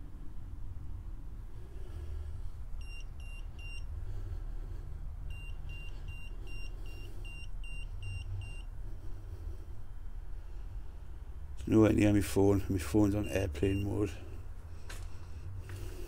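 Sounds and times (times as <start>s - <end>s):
emf meter beeping: 2.8s - 3.9s, 5.2s - 8.8s, 13.1s - 14.2s.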